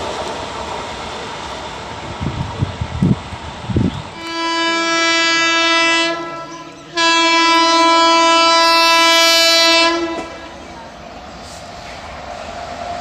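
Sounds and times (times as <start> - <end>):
locomotive air horn blasts: 4.2 - 10.5.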